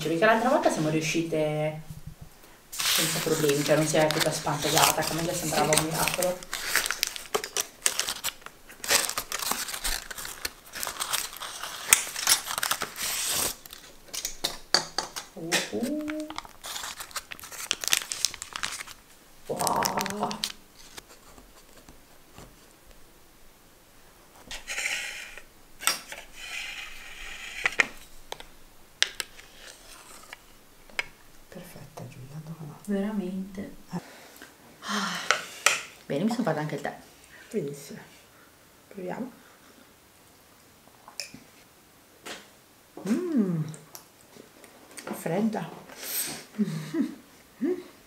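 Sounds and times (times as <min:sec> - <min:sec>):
baking paper crinkling: 0:02.7 - 0:23.1, 0:24.3 - 0:31.7
cake server scraping: 0:02.8 - 0:14.4, 0:15.5 - 0:18.9, 0:24.4 - 0:28.4, 0:29.1 - 0:30.5.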